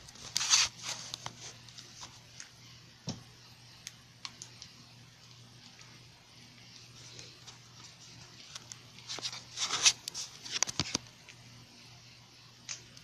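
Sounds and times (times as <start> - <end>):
camera rubbing against shirt: 0.1 - 2.2, 7.5 - 11.0.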